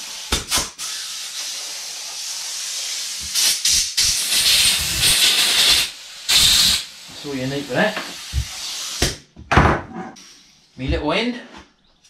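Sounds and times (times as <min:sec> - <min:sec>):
compressed air blow gun hissing: 0:00.0 - 0:09.2.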